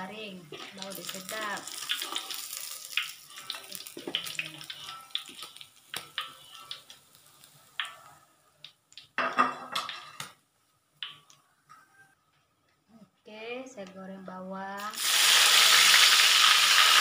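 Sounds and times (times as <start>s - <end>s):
oil sizzling: 0.0s - 10.4s, 14.8s - 17.0s
metal spatula scraping a wok: 0.5s - 6.9s.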